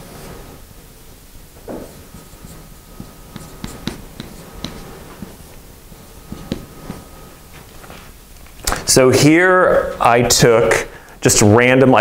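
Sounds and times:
marker squeaking on whiteboard: 1.9s - 8.0s.

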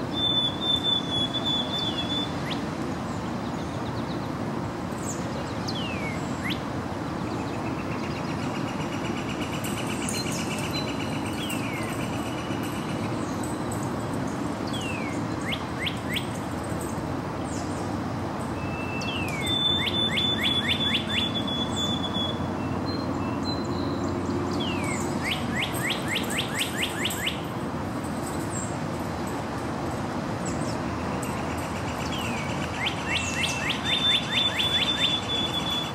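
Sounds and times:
sparrow whistled song: 0.1s - 2.6s, 5.7s - 6.6s, 18.6s - 27.4s, 32.1s - 35.9s
other birds singing: 5.0s - 27.6s, 30.4s - 35.9s.

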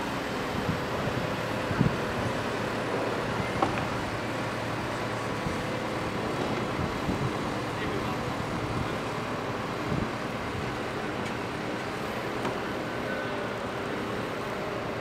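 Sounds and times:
crane diesel engine running: 0.0s - 15.0s
wind on microphone: 0.4s - 2.5s, 6.6s - 7.6s, 9.8s - 10.7s.

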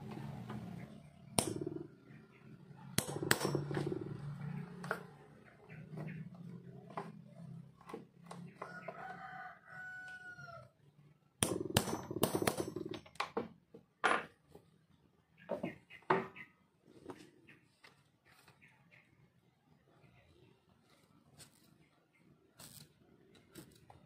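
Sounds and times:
hammer striking steel punch: 3.0s - 3.9s, 11.4s - 12.9s
rooster crowing: 8.6s - 10.8s.

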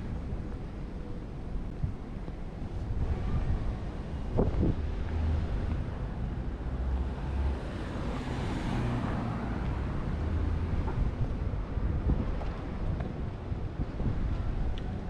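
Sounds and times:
car passing by: 6.8s - 11.2s.

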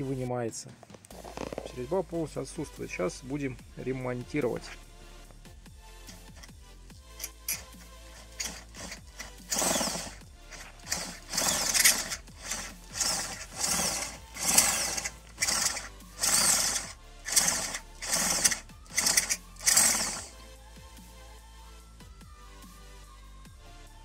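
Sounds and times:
faint background music: 0.0s - 24.0s
electric drill pulses: 6.1s - 6.6s, 7.2s - 20.3s.

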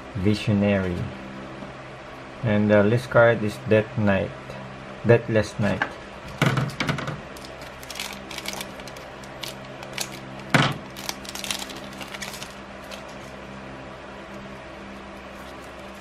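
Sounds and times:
steady low hum: 0.0s - 16.0s
foil wrapper crinkling: 7.3s - 13.4s, 15.2s - 16.0s
scissors snipping foil wrapper: 7.4s - 13.2s.

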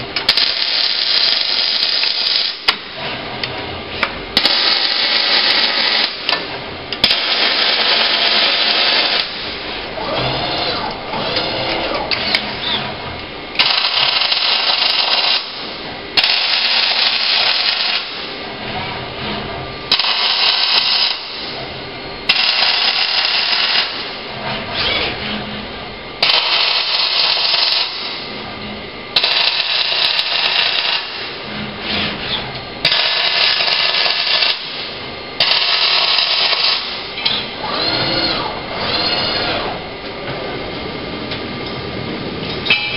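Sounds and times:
welding arc crackling and buzzing: 0.2s - 2.8s, 4.4s - 12.5s, 13.5s - 18.5s, 19.9s - 21.6s, 22.2s - 24.2s, 26.2s - 28.3s, 29.1s - 31.5s, 32.8s - 37.2s.

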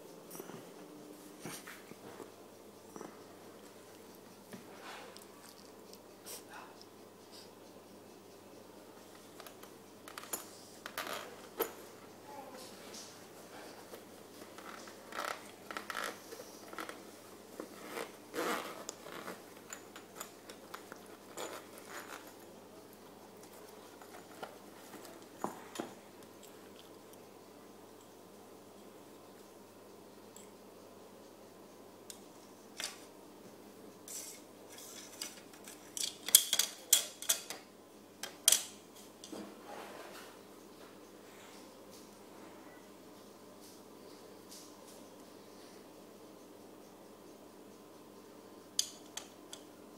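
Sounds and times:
zipper being pulled open: 17.7s - 19.4s.

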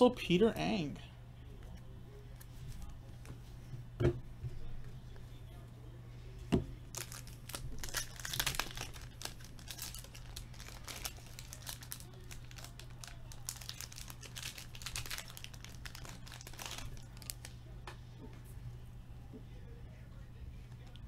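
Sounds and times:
steady low hum: 0.0s - 21.0s
foil wrapper crinkling and tearing: 6.9s - 17.6s.

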